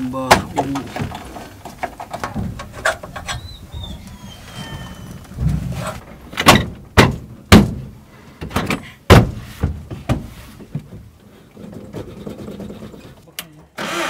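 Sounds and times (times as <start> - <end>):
knocks in metal van cab: 6.3 - 7.9, 8.5 - 10.3.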